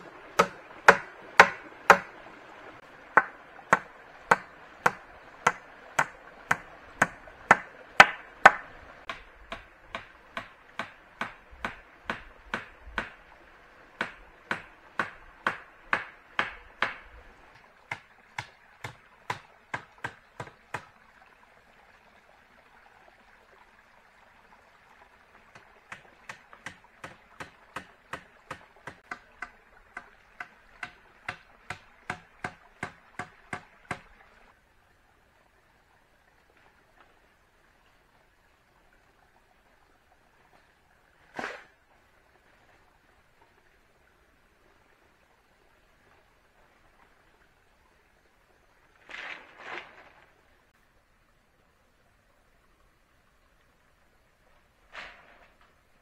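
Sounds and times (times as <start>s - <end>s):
blade chopping wood: 0.4s - 2.1s, 3.2s - 13.2s, 14.0s - 17.0s, 25.6s - 34.1s.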